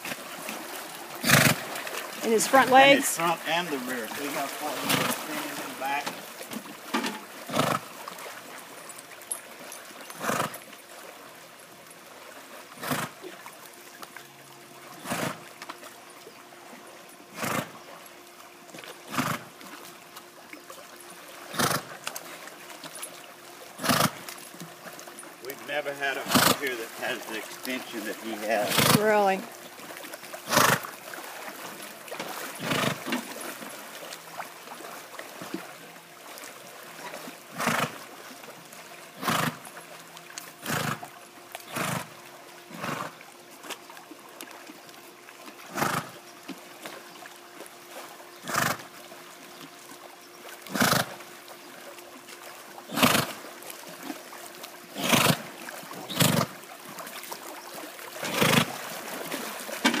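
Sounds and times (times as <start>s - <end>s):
water washing: 0.0s - 16.0s, 18.8s - 43.0s, 52.0s - 60.0s
horse blowing forced breaths: 1.2s - 2.0s, 4.7s - 5.5s, 7.4s - 8.0s, 10.2s - 10.6s, 12.7s - 13.3s, 15.0s - 15.5s, 17.3s - 17.8s, 19.1s - 19.6s, 21.5s - 22.0s, 23.8s - 24.2s, 26.2s - 26.6s, 28.6s - 29.0s, 30.4s - 30.9s, 32.5s - 33.1s, 37.5s - 38.0s, 39.2s - 39.6s, 40.6s - 41.1s, 41.7s - 42.1s, 42.7s - 43.2s, 45.7s - 46.2s, 48.4s - 48.9s, 50.7s - 51.1s, 52.9s - 53.4s, 54.9s - 55.5s, 56.1s - 56.5s, 58.2s - 58.8s.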